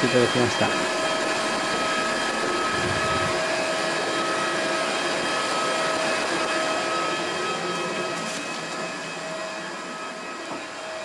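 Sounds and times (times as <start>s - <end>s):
jet turbine whine: 0.0s - 11.0s
aircraft rushing noise: 2.4s - 3.6s.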